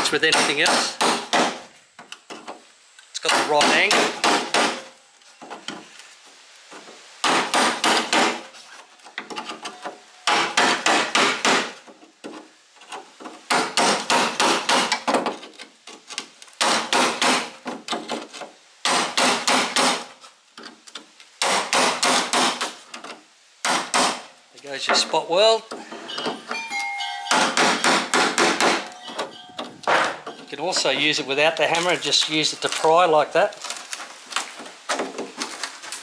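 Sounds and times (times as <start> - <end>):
hammer striking metal wedge: 27.3 - 30.2.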